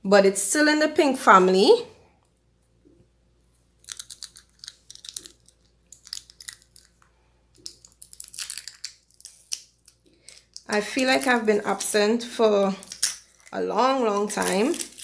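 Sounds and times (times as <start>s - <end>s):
packaging wrap crinkling: 3.8s - 7.0s, 7.6s - 12.0s, 12.7s - 15.0s.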